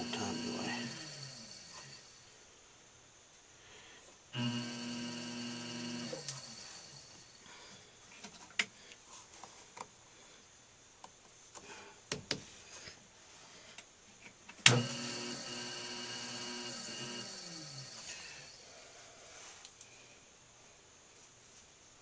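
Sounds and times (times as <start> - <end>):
potter's wheel motor whirring: 0.0 - 2.2, 4.4 - 7.4, 14.7 - 18.6.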